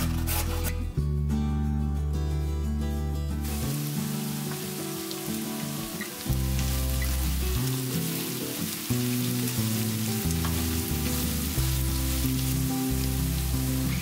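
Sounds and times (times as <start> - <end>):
background music: 0.0 - 14.0
food sizzling in frying pan: 3.4 - 14.0.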